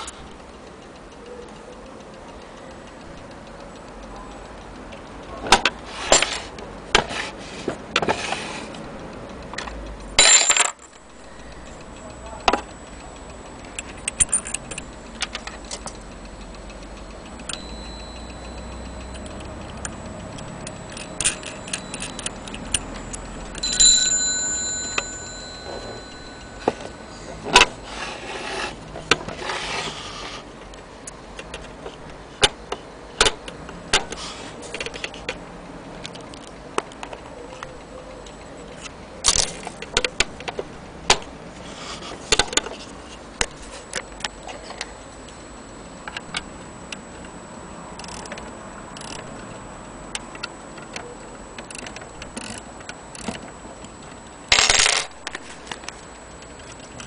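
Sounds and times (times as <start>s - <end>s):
clock strike bell ringing: 17.5s - 28.4s.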